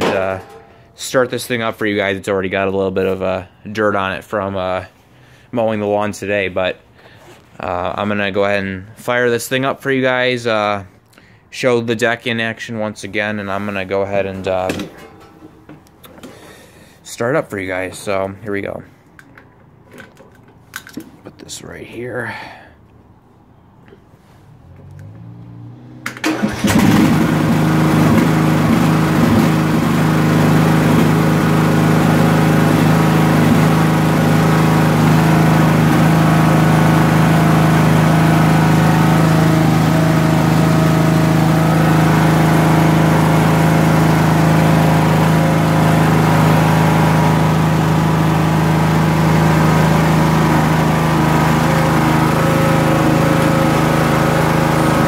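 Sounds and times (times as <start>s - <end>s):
lawn tractor engine running: 0.0s - 1.1s, 14.4s - 16.6s, 26.0s - 55.0s
electric starter cranking: 26.1s - 55.0s.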